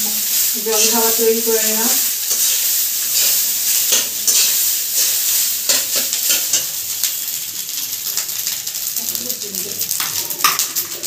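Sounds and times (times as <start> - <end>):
rice sizzling in a metal pan: 0.0 - 11.0
metal spatula scraping a pan: 0.3 - 8.5.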